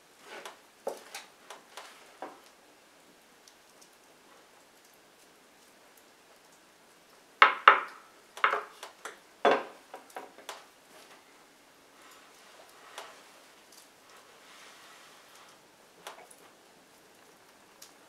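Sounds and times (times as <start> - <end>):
soft dough handling: 8.7 - 18.0.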